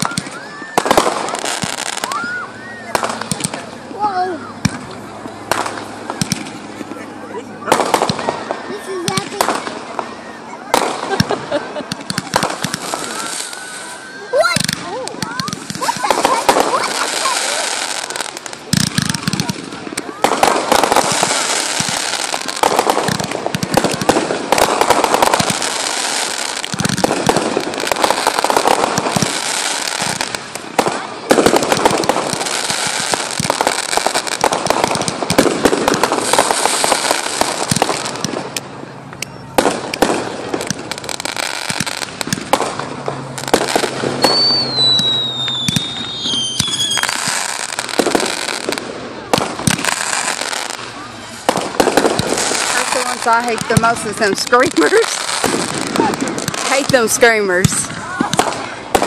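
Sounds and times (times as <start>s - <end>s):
fireworks bangs and crackling: 0.0s - 59.0s
firework whistle falling in pitch: 44.2s - 47.2s.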